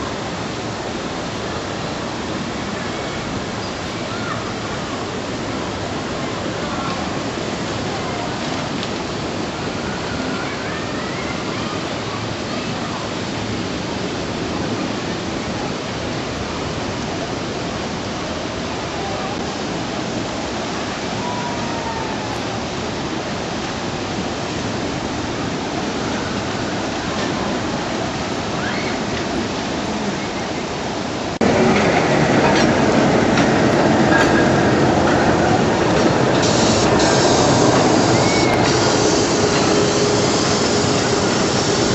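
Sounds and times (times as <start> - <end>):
steady rushing noise: 29.1 - 41.9.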